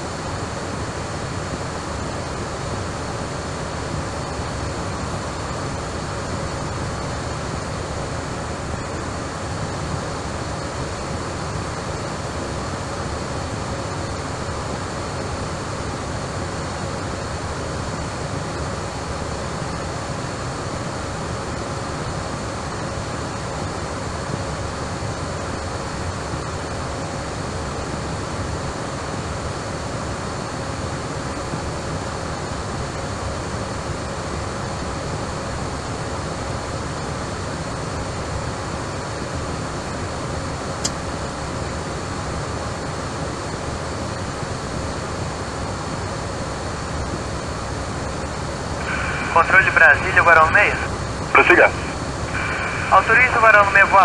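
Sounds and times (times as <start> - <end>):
faint hum and whine: 0.0 - 54.0
steady rushing noise: 48.4 - 54.0.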